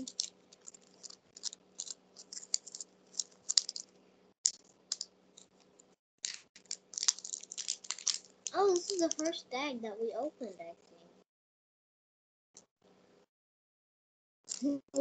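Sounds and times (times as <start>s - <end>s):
plastic wrappers crinkling: 0.0s - 3.9s, 4.5s - 5.6s, 6.2s - 9.4s.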